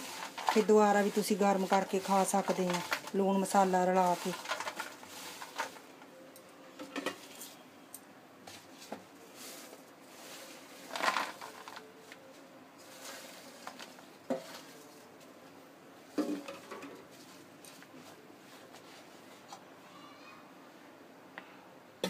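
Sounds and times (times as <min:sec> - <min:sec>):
fries clinking and rustling: 0:00.0 - 0:06.2, 0:08.6 - 0:15.2.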